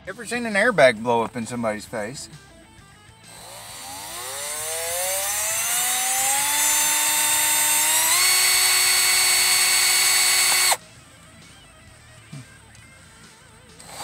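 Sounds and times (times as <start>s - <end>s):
power drill motor whining: 3.1s - 10.8s, 13.7s - 14.0s.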